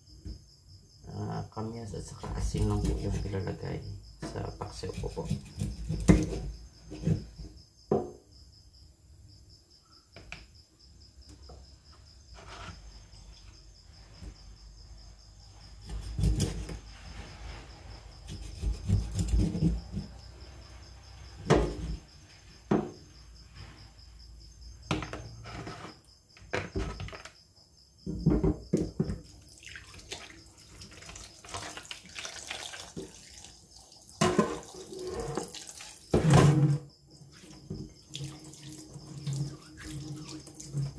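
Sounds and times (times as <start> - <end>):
knife scraping fish in sink: 2.2 - 3.4, 4.2 - 7.4, 15.8 - 16.9, 18.2 - 20.1, 34.2 - 36.8, 37.6 - 40.9.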